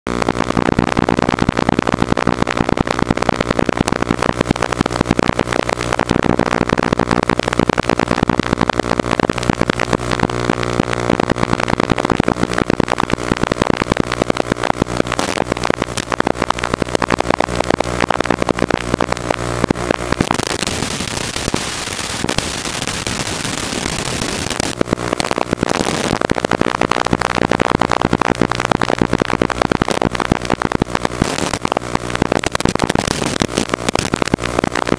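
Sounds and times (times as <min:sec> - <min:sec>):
dense crackle: 0:00.1 - 0:34.9.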